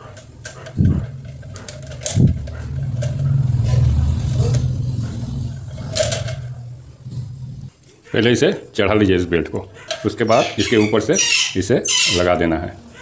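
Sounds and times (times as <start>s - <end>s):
low engine rumble: 0.4s - 7.8s.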